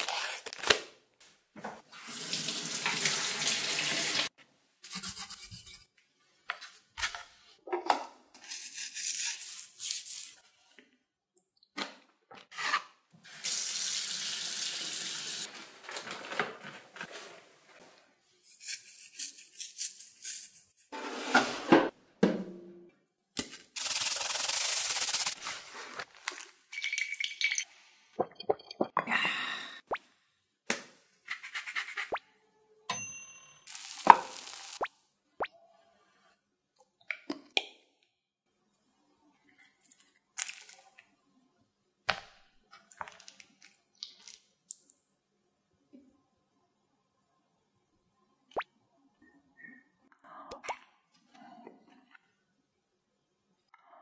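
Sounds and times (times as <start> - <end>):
tap water running into sink: 2.2 - 4.3.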